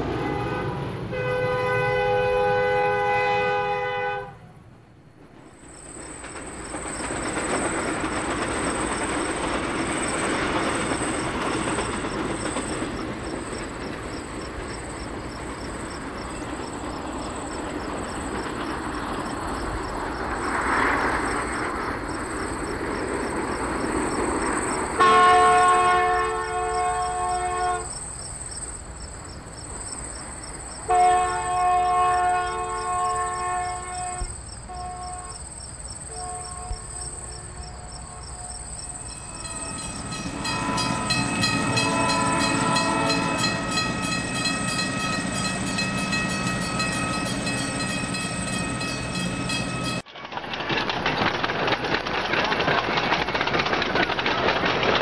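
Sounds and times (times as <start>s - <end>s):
model trains rolling rumble: 0.0s - 55.0s
model train horn chord: 0.2s - 4.6s, 25.0s - 27.9s, 30.9s - 35.4s, 36.1s - 37.0s, 39.2s - 50.0s.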